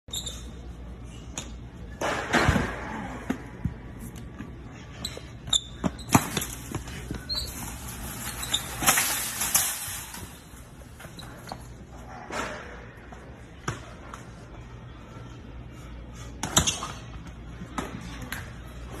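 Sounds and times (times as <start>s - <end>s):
metal shopping cart rattling: 7.5s - 10.6s.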